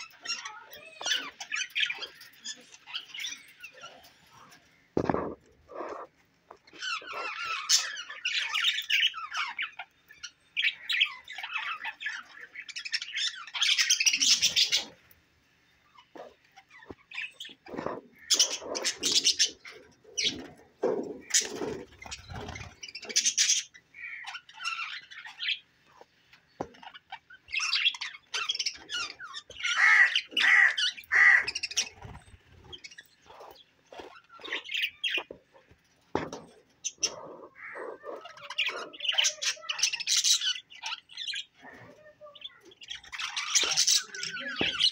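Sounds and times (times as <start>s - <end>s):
budgerigars chirping and warbling: 0.0s - 15.1s, 15.8s - 44.9s
lower sharper bird sounds: 15.8s - 44.9s.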